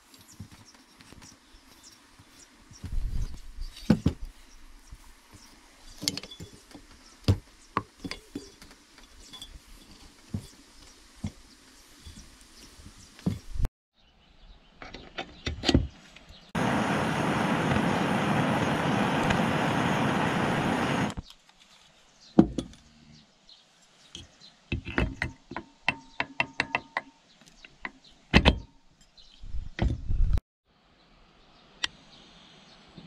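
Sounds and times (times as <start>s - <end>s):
steady rushing hiss: 16.6s - 22.2s.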